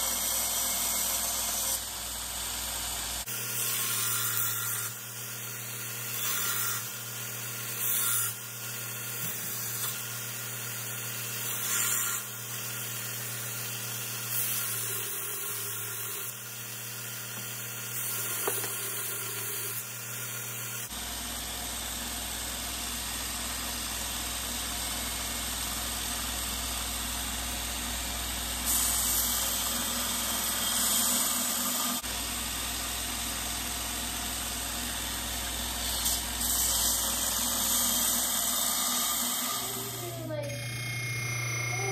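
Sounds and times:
belt grinder sanding: 0:05.6 - 0:20.9.

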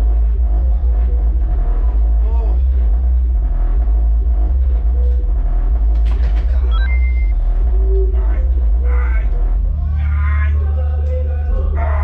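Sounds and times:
heavy bass boom of funk music: 0:00.0 - 0:07.8.

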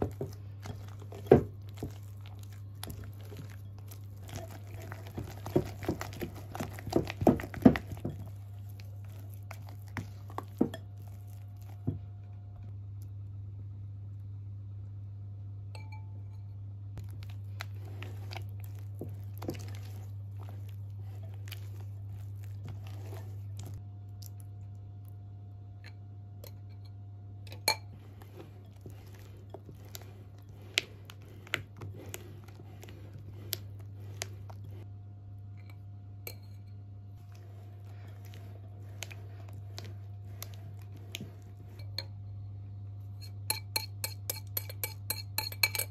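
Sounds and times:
spatula squelching batter: 0:00.0 - 0:12.1, 0:17.0 - 0:25.2, 0:27.5 - 0:34.9, 0:35.6 - 0:42.3, 0:43.0 - 0:45.9
steady low hum: 0:00.0 - 0:45.9
spatula clinking against glass: 0:43.2 - 0:45.9.

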